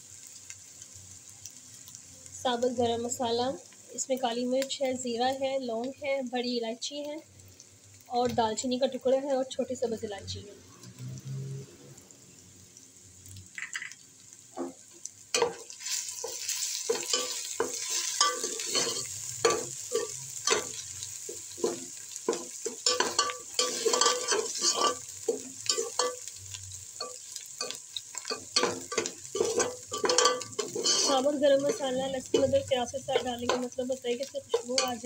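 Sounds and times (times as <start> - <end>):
food sizzling: 0.0 - 35.0
metal spatula scraping a pot: 15.4 - 20.8, 21.6 - 26.3, 27.0 - 33.6.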